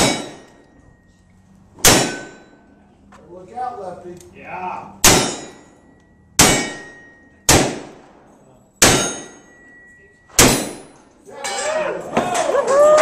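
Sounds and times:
steel target clanging: 0.0 - 1.1, 1.8 - 2.7, 5.0 - 12.5.

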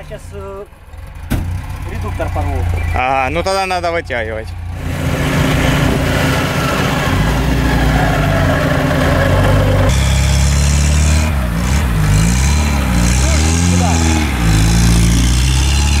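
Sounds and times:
engine drone: 0.8 - 16.0
engine revving up and down: 4.7 - 16.0.

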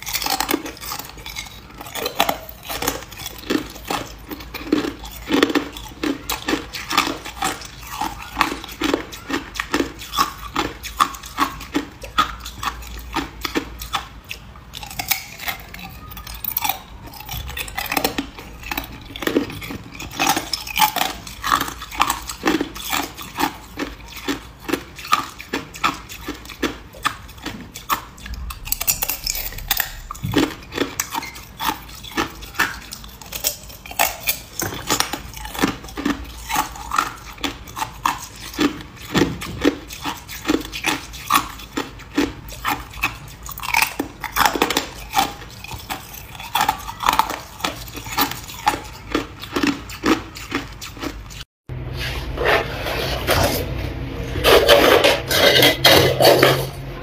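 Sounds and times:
person chewing ice: 0.0 - 57.0.

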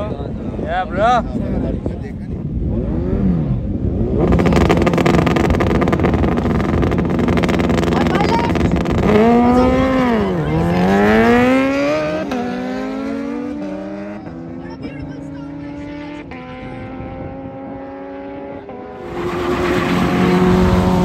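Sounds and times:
drag racing engine revving: 2.7 - 21.0.

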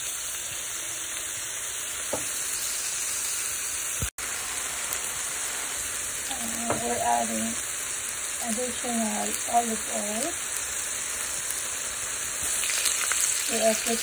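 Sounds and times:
food sizzling in a pan: 0.0 - 14.0.

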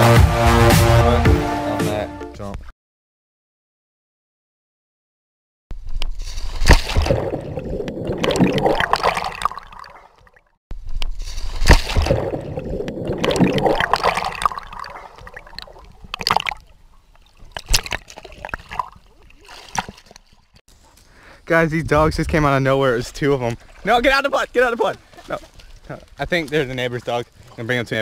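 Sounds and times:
water splashing and sloshing: 5.8 - 21.0, 21.9 - 28.0
sharp water slaps: 6.4 - 10.4, 11.5 - 16.7, 17.4 - 20.4.

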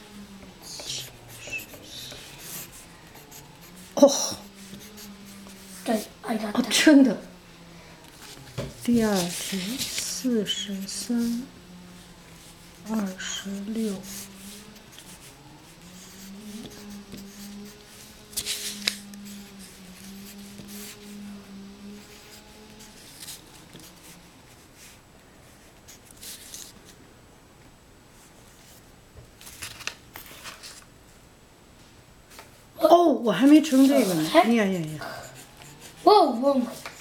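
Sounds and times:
steady low hum: 0.0 - 29.5, 30.8 - 37.0
pencil scratching on paper: 0.7 - 6.8, 8.8 - 11.5, 12.9 - 21.2, 21.9 - 24.2, 33.4 - 37.0.

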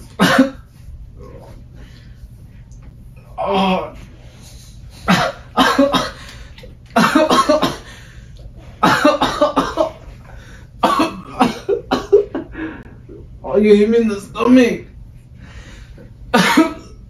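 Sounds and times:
man coughing and retching: 0.0 - 0.8, 5.0 - 8.1, 8.7 - 12.5, 16.3 - 17.0.

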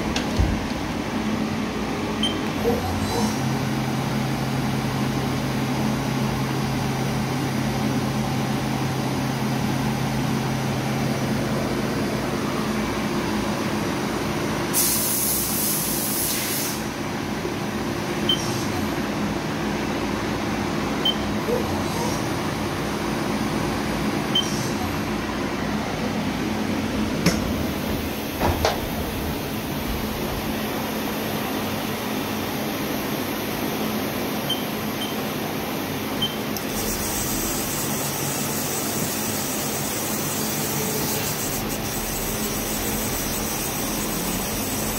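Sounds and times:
sharp hiss of air: 14.7 - 17.0
milling machine hum: 17.2 - 44.9.

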